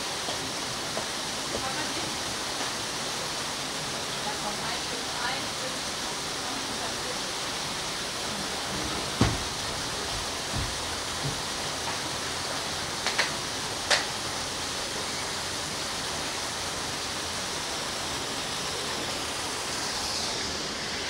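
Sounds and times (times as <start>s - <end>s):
steady rushing noise: 0.0s - 21.0s.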